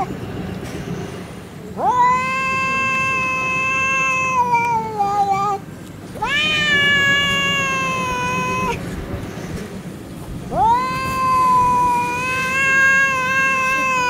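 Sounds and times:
cats yowling: 1.8s - 9.0s, 10.4s - 14.0s.

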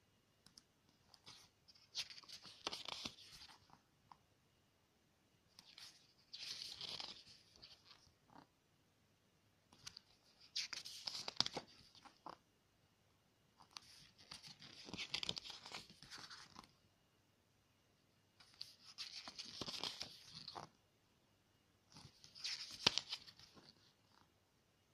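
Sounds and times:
photobook pages turning: 1.1s - 3.8s, 5.5s - 8.5s, 9.7s - 12.4s, 13.6s - 16.8s, 18.4s - 20.7s, 21.9s - 24.3s.

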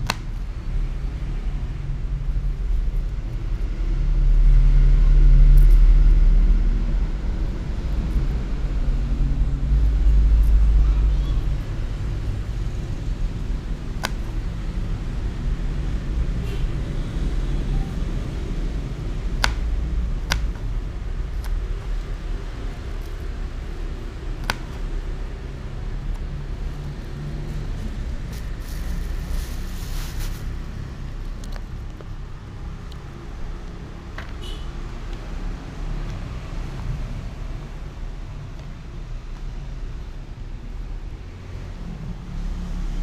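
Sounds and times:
short rustle: 27.6s - 30.7s.

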